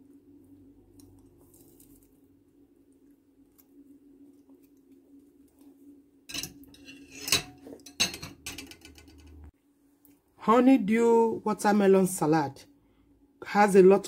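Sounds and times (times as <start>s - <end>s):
faint steady hum: 0.0s - 14.0s
utensil scraping dishes: 6.3s - 9.4s.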